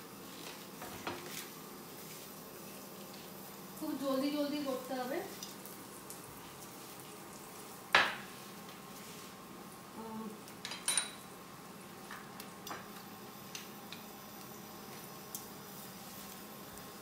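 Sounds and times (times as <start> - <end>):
kitchen utensils clinking: 10.6 - 11.2.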